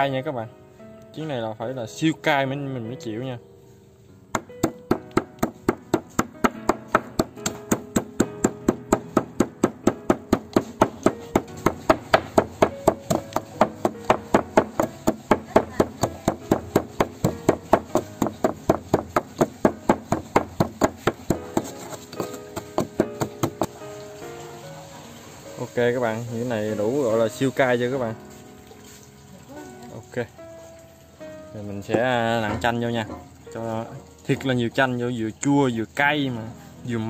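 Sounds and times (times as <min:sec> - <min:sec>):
rhythmic chopping knocks: 0:04.3 - 0:23.9.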